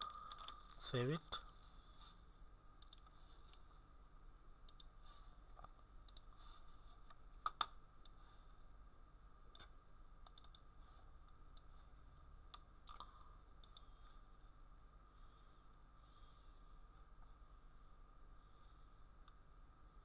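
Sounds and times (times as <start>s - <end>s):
faint steady hum: 0.0s - 20.0s
computer mouse clicks: 2.8s - 3.7s, 4.6s - 5.0s, 5.6s - 6.4s, 7.0s - 8.2s, 9.5s - 10.7s, 12.5s - 13.9s.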